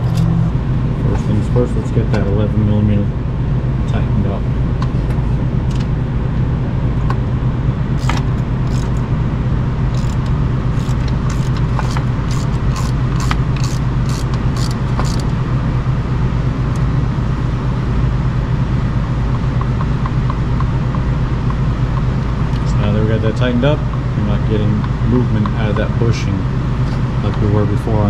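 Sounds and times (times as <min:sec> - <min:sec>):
steady low hum: 0:00.0 - 0:28.0
hand wrench clicking: 0:08.0 - 0:09.0, 0:09.9 - 0:15.3.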